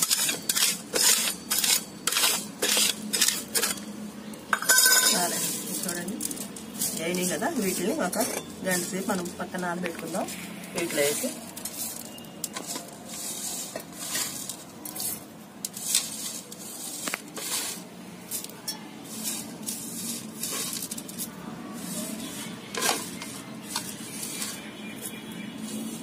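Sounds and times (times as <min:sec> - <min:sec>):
seeds rustling on plastic tray: 0:05.1 - 0:08.1, 0:08.7 - 0:26.0.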